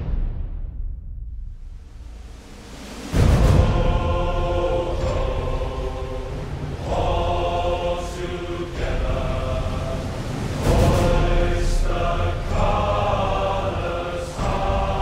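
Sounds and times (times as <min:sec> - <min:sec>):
steady low rumble: 0:00.0 - 0:15.0
crowd chanting in unison: 0:03.1 - 0:15.0.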